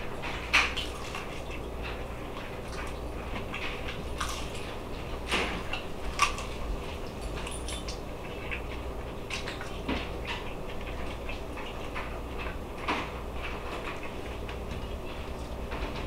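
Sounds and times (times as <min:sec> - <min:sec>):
low steady hum: 0:00.0 - 0:16.0
person chewing food: 0:00.9 - 0:12.6.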